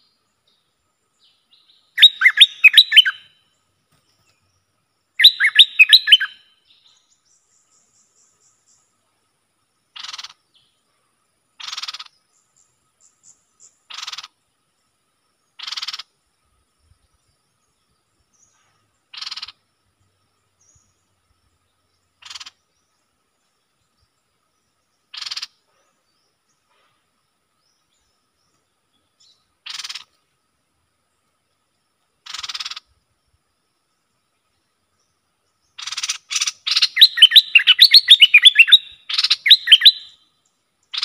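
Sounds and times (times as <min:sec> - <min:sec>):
faint birdsong chirps: 0:00.0 - 0:41.0
bird giving harsh calls: 0:02.0 - 0:03.2, 0:05.2 - 0:06.4, 0:19.1 - 0:19.6, 0:22.2 - 0:22.6, 0:32.2 - 0:32.8, 0:35.8 - 0:40.1.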